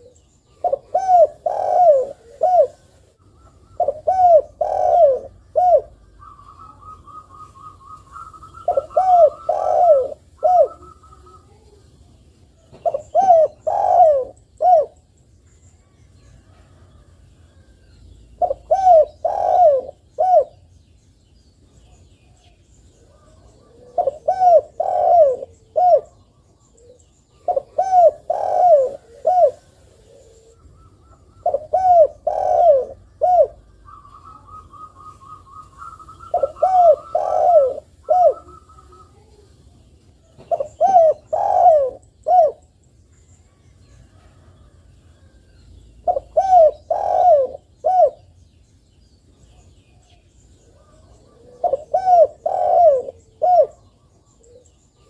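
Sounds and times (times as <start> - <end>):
dove cooing: 0.0 - 11.8, 12.6 - 15.0, 18.4 - 20.7, 23.0 - 39.6, 40.2 - 42.8, 46.0 - 48.3, 49.5 - 55.0.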